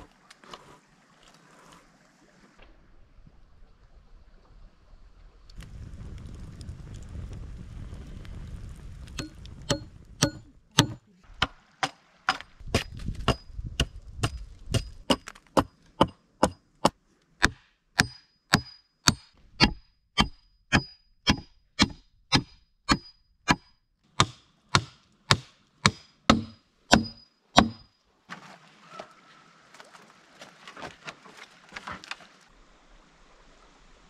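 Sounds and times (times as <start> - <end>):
hatchet chopping wood: 9.2 - 27.9.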